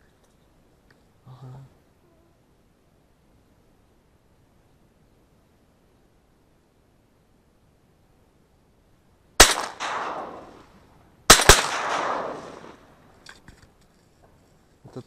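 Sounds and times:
shotgun shots with echo: 9.4 - 12.9.

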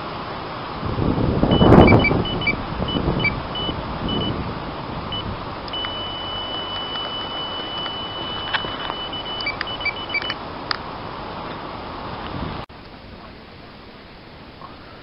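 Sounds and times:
loud rushing noise: 0.0 - 12.6
bite alarm bleeps: 1.5 - 4.4, 5.1 - 10.4
continuous alarm tone: 1.5 - 4.4, 5.1 - 10.4.

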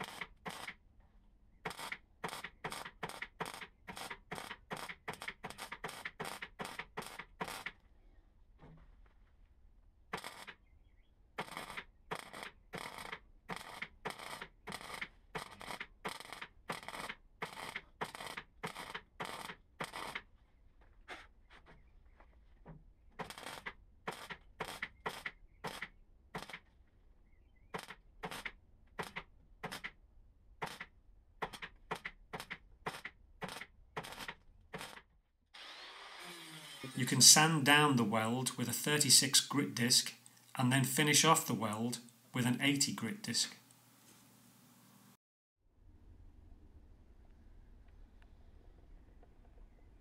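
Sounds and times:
mig welder tack welding bursts: 0.0 - 0.7, 1.7 - 7.7, 10.2 - 10.5, 11.4 - 20.2, 23.2 - 26.6, 32.9 - 35.0.

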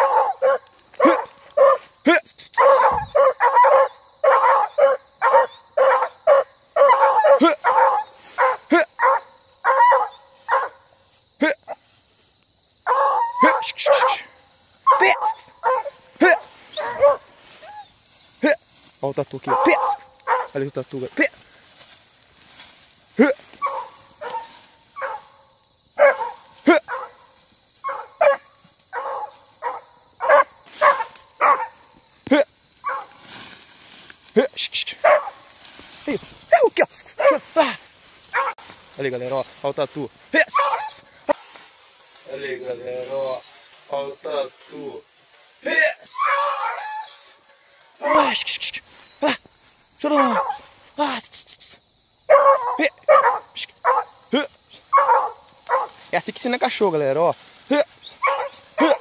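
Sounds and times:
dog yelping and barking: 0.0 - 1.9, 2.6 - 10.9, 12.8 - 17.9, 19.5 - 20.6, 23.6 - 25.4, 26.0 - 31.9, 32.8 - 33.2, 35.0 - 35.5, 37.2 - 37.5, 38.3 - 38.6, 40.5 - 41.4, 46.1 - 47.2, 48.0 - 48.4, 50.2 - 50.7, 52.3 - 54.2, 54.9 - 56.0, 58.1 - 59.0.

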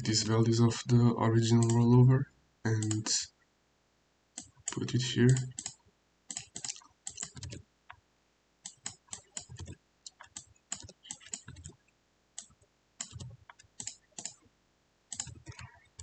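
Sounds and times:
typing on computer keyboard: 4.4 - 7.6, 8.7 - 11.8, 12.4 - 14.4, 15.1 - 16.0.

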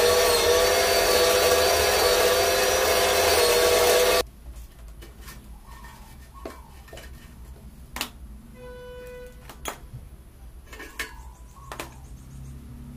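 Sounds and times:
metal parts clicking and clinking: 10.7 - 12.0.

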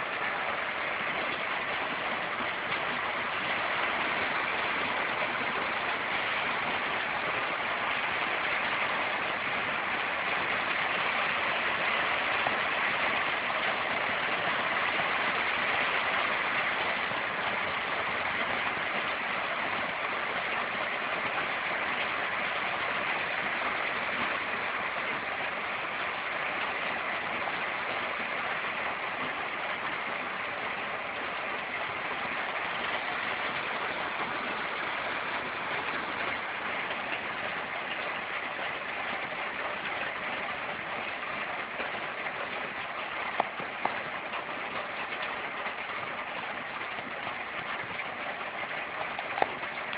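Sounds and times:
rain on trees: 0.0 - 49.9.

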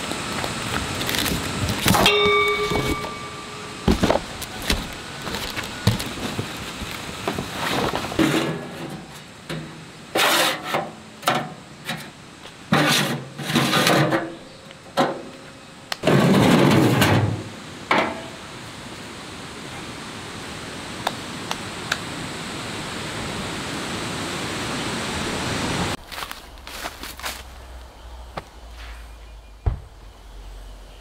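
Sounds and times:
metallic clang: 1.9 - 4.1
metal knocks and scrapes: 7.3 - 12.1, 12.7 - 14.4, 16.0 - 18.2.

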